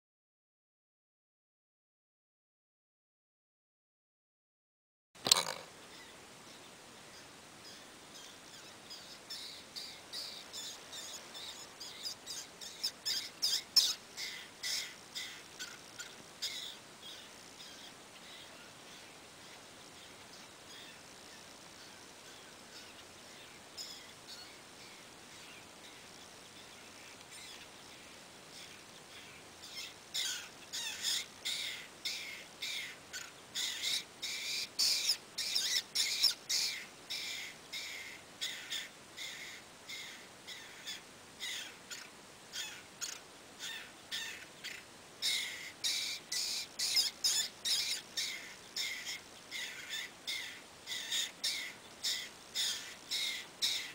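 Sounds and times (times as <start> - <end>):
woodpeckers calling rapidly: 7.2 - 53.9.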